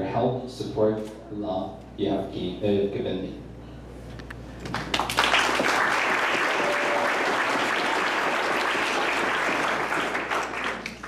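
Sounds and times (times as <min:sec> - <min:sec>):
crowd applauding: 0:04.6 - 0:11.0.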